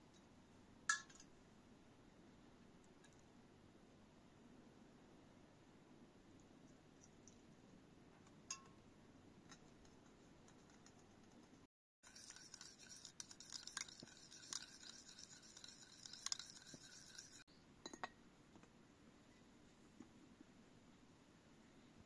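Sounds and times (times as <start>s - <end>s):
spoon scraping plastic bowl: 12.0s - 17.5s.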